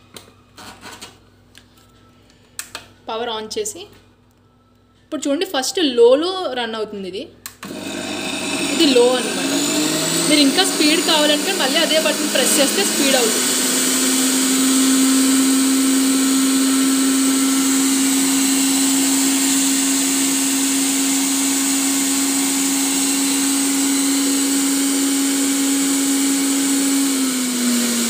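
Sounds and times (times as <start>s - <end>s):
blender motor grinding: 7.6s - 28.0s.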